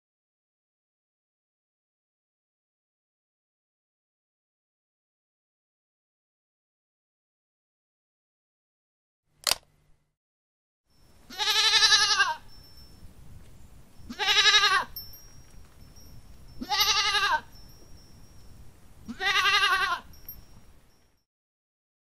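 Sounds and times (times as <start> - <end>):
short sharp click: 9.4 - 9.7
goat bleating: 11.3 - 12.4, 14.1 - 14.9, 16.6 - 17.5, 19.1 - 20.1.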